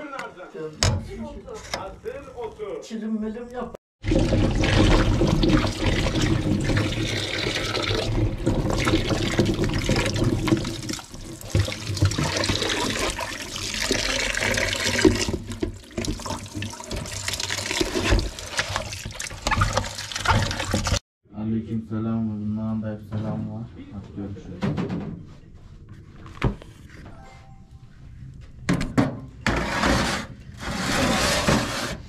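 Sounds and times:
tap water running into bowl: 4.0s - 21.0s
water splashing: 4.0s - 21.0s
hands scrubbing potatoes: 4.4s - 21.0s.

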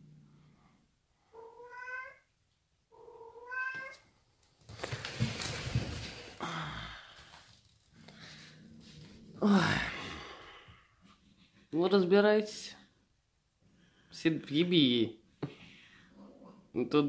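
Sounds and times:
cat meowing: 1.3s - 2.3s, 2.9s - 4.0s.

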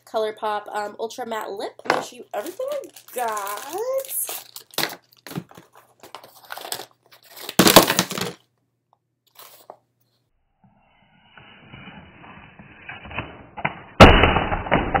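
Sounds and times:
plastic packaging crinkling: 2.2s - 8.4s.

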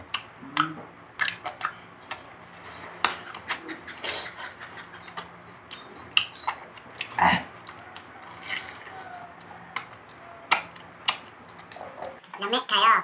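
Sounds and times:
fruit peeling and crunching: 0.0s - 12.3s
person vocal sound: 0.4s - 1.0s.

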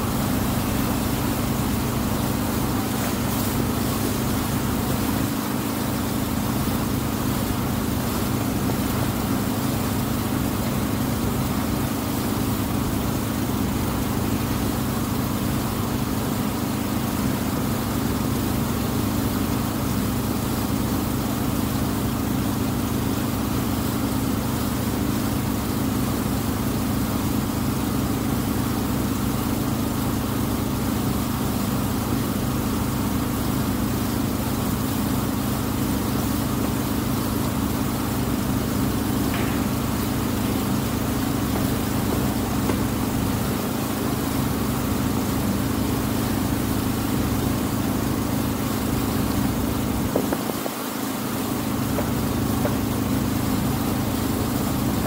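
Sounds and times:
boat engine drone: 0.0s - 55.0s
steady hiss: 31.3s - 55.0s.

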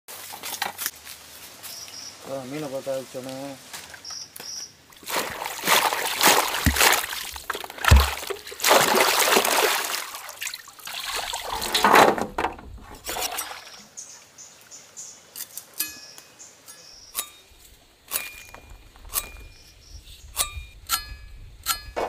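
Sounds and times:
water sloshing in a basin: 4.9s - 14.0s
dull thumps: 6.3s - 9.1s.

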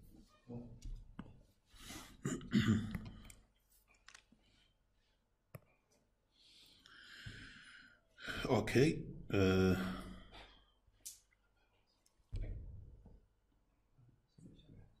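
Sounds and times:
computer mouse clicks: 3.0s - 4.3s
low voice: 9.3s - 10.1s.

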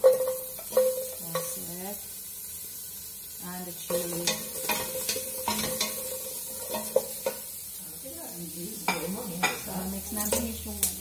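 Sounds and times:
spoon knocking against pot: 0.0s - 1.6s, 3.9s - 7.4s
wooden spoon scraping a pot: 0.0s - 1.7s, 3.9s - 7.5s
faint sizzle: 0.0s - 11.0s.

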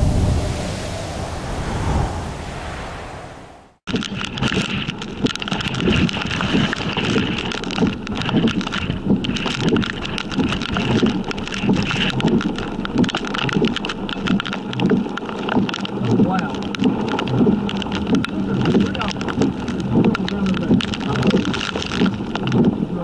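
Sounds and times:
wind rushing: 0.0s - 3.8s
raindrops ticking on vehicle: 3.9s - 23.0s.

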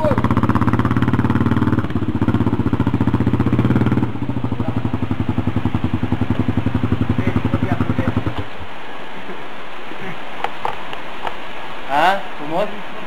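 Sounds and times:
atv engine revving: 0.0s - 8.7s.

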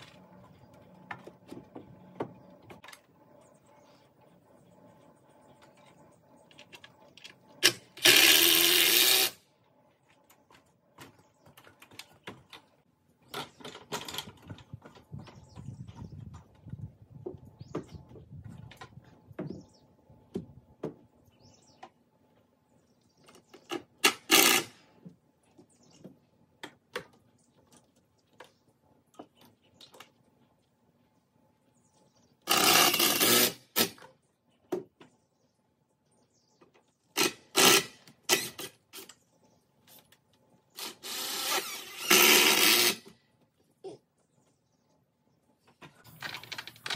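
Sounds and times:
power drill driving screws into wood: 7.6s - 9.4s, 24.0s - 24.8s, 32.5s - 34.0s, 37.2s - 38.7s, 40.8s - 43.1s.

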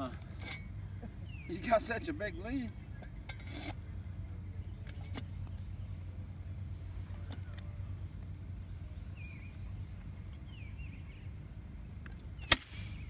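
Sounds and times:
steady low rumble: 0.0s - 13.0s
bird chirping: 0.5s - 3.3s, 8.4s - 13.0s.

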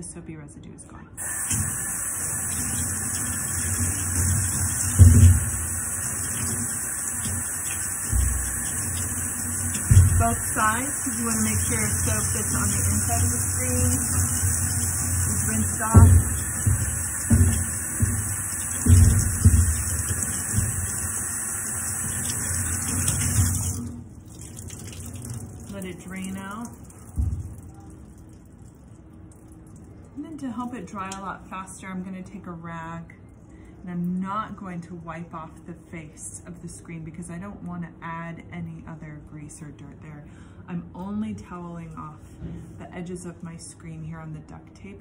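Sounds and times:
tap water splashing in sink: 1.2s - 28.5s.

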